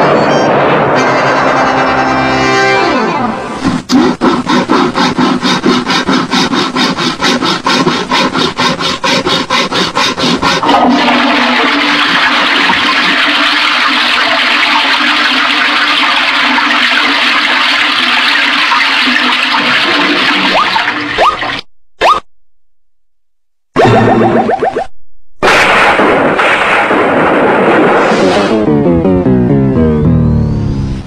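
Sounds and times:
toilet flushing: 0:10.2 - 0:21.6.

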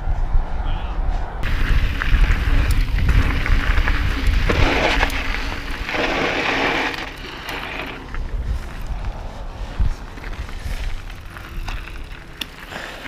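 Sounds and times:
wind buffeting microphone: 0:00.0 - 0:12.2
bike rattling and clicking: 0:01.4 - 0:13.0
bike tyres on dirt and gravel: 0:01.4 - 0:13.0.

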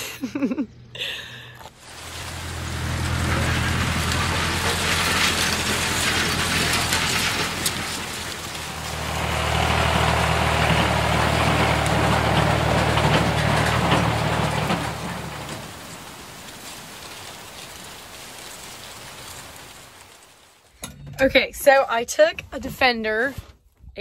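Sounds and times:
heavy machinery engine rumbling: 0:01.6 - 0:20.6.

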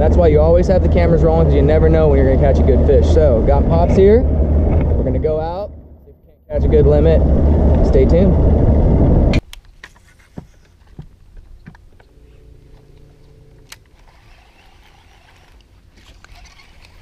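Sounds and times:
outboard motor running: 0:00.0 - 0:05.9.

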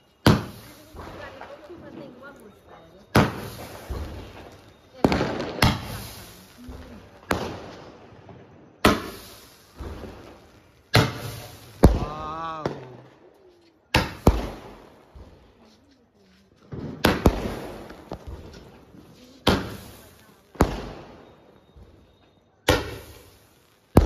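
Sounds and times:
fireworks bangs echoing: 0:00.0 - 0:13.3, 0:13.9 - 0:15.6, 0:16.6 - 0:24.0.

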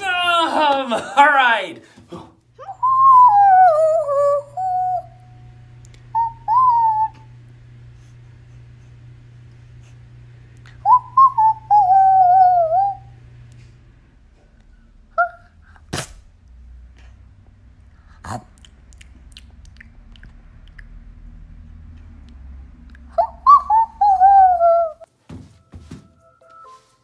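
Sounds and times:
low steady hum: 0:00.0 - 0:26.6
wavering whistle: 0:02.6 - 0:07.4, 0:10.8 - 0:13.3, 0:23.1 - 0:25.1.

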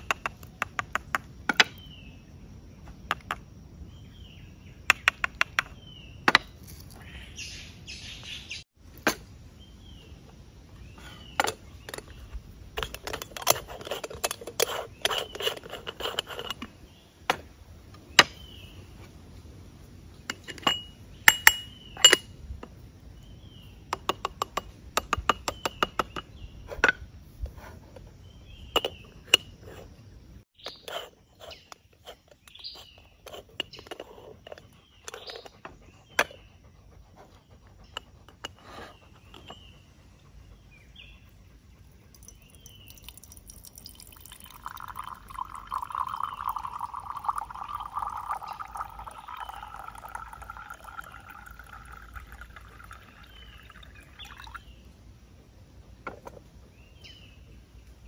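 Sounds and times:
small birds chirping: 0:00.0 - 0:08.8, 0:09.5 - 0:19.2, 0:20.0 - 0:58.0.

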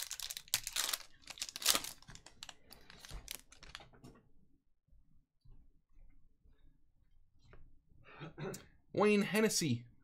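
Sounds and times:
foil wrapper crinkling: 0:00.0 - 0:03.8.

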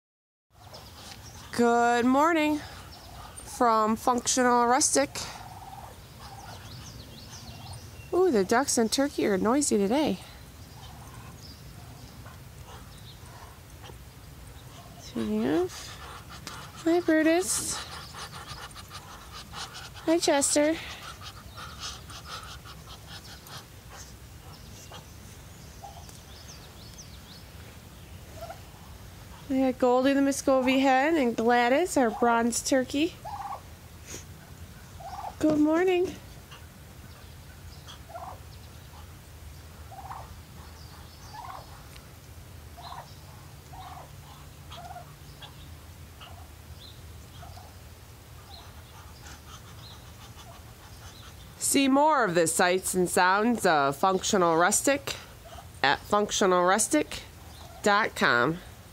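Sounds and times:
ducks hissing: 0:00.6 - 0:08.6, 0:09.7 - 0:42.1, 0:42.8 - 0:58.4
turkey hen calling: 0:02.3 - 0:08.6, 0:10.6 - 0:26.7, 0:28.3 - 0:29.6, 0:30.3 - 0:42.0, 0:42.7 - 0:51.6, 0:57.4 - 0:58.4.

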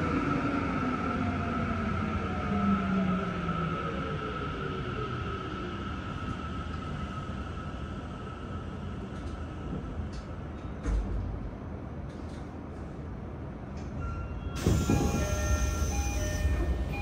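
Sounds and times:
rail running noise: 0:00.0 - 0:17.0
train inverter whining: 0:14.6 - 0:17.0.

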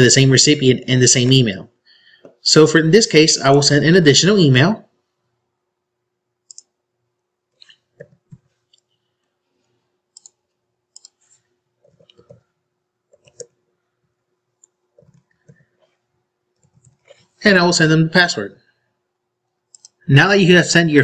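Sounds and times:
computer mouse clicks: 0:06.4 - 0:06.8, 0:07.6 - 0:09.0, 0:10.1 - 0:12.5, 0:13.1 - 0:13.6, 0:14.6 - 0:15.8, 0:16.6 - 0:17.2, 0:19.5 - 0:20.0
keyboard typing: 0:06.4 - 0:06.8, 0:07.6 - 0:08.9, 0:10.1 - 0:12.5, 0:13.1 - 0:13.6, 0:14.6 - 0:15.9, 0:16.5 - 0:17.2, 0:19.7 - 0:20.0.

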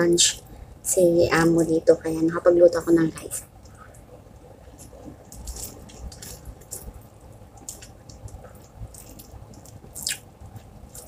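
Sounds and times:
person chewing: 0:04.7 - 0:11.0
mouth smacks and finger clicks: 0:07.6 - 0:10.3.

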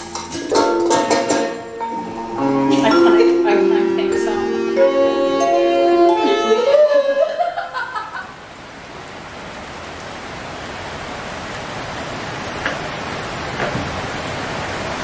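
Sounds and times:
music playing: 0:00.0 - 0:07.4
rain hissing: 0:00.0 - 0:15.0.

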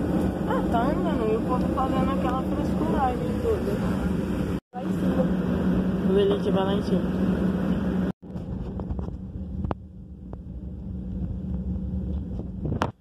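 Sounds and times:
airliner cabin engine rumble: 0:00.0 - 0:13.0.

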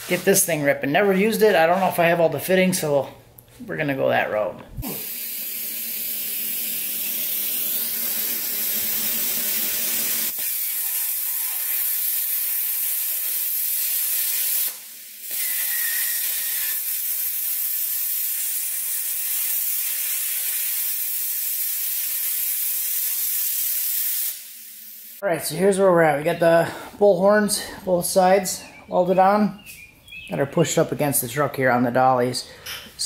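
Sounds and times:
plasma cutter hissing: 0:04.8 - 0:25.2.

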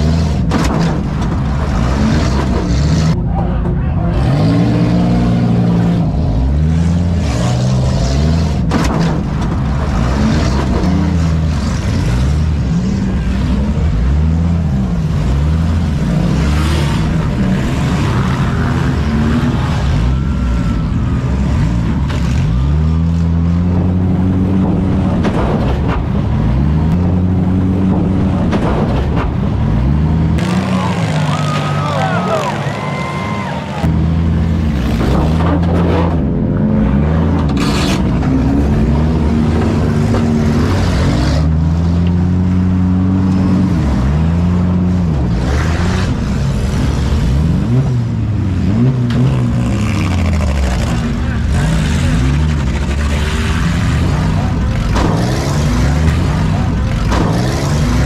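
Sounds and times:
car engines revving: 0:00.0 - 0:58.0.

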